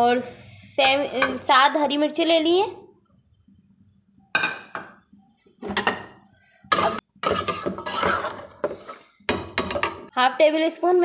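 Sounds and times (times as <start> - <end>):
metal spoon scraping a pot: 5.7 - 10.0.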